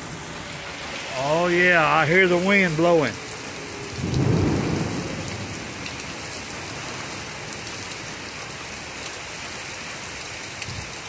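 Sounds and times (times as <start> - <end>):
heavy rain pouring: 0.0 - 11.0
low rumble of thunder: 3.7 - 8.3
wind blowing in trees: 10.0 - 11.0.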